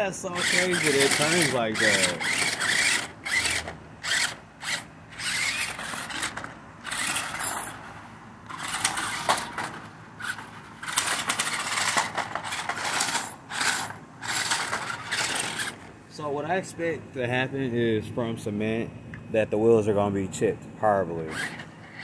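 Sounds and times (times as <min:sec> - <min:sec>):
tyres scraping over ground: 0:00.0 - 0:16.0, 0:21.2 - 0:22.0
toy truck motor whirring: 0:00.3 - 0:15.9, 0:21.2 - 0:22.0.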